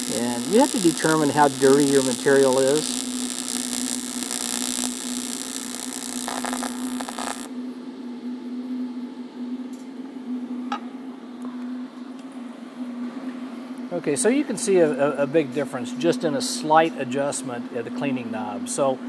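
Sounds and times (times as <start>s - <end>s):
welding arc buzzing hiss: 0.0s - 7.5s
low hum: 0.0s - 9.6s.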